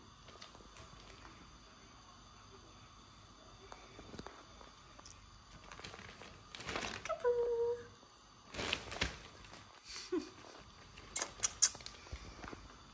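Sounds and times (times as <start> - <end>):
shopping bag rustling: 5.6 - 7.2, 8.5 - 9.6.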